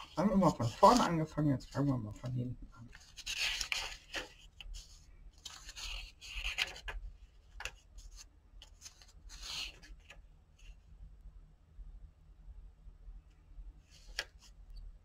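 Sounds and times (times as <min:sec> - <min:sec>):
paper pages rustling: 0:00.0 - 0:10.2, 0:13.9 - 0:14.6.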